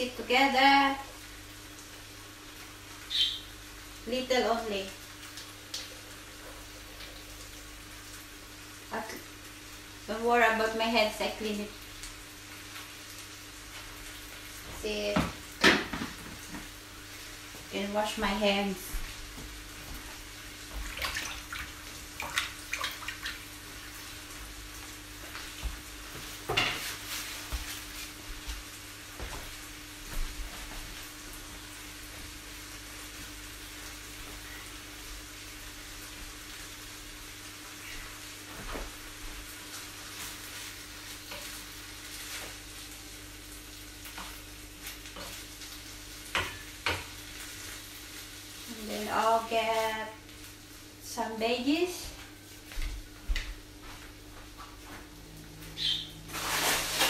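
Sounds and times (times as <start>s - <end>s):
food sizzling in a pan: 0.0s - 52.8s, 54.5s - 57.0s
water splashing from tap: 20.7s - 23.5s.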